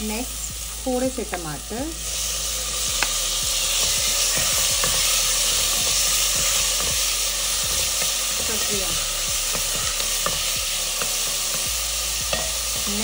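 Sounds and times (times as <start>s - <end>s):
onion sizzling in hot oil: 0.0s - 13.0s.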